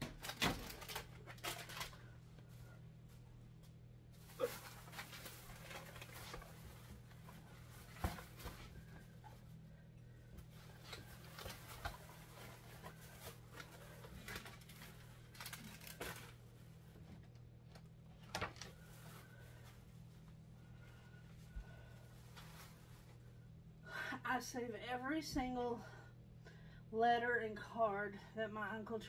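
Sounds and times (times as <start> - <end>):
plastic bag rustling: 0.0 - 3.2, 4.2 - 9.6, 10.4 - 16.8
steady low hum: 0.0 - 29.0.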